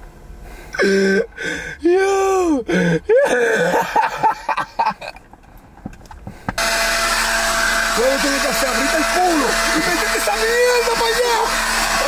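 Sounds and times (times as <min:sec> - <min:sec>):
man shouting and gasping: 0:00.7 - 0:03.8
leaf blower rushing air: 0:06.3 - 0:12.0.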